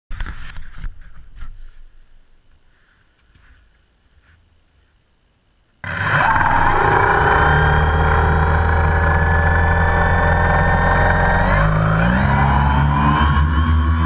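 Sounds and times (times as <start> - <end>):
drone motor and rotors whining: 5.8 - 14.0.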